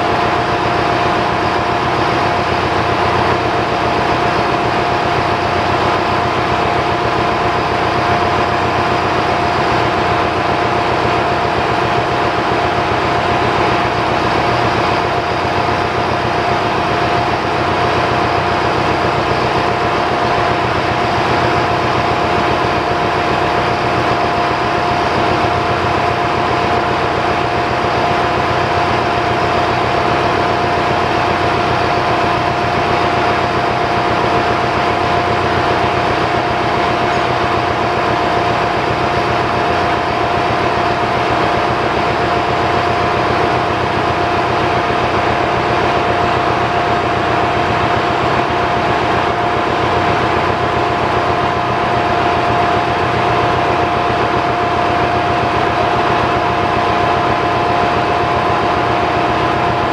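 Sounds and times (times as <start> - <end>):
steady machinery whine: 0.0 - 59.9.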